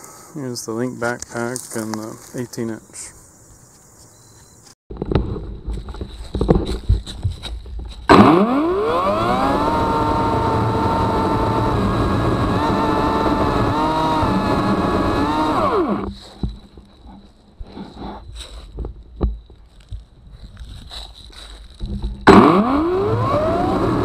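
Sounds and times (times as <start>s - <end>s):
battery chainsaw cutting tree trunk: 8.1s - 16.1s, 22.3s - 24.0s.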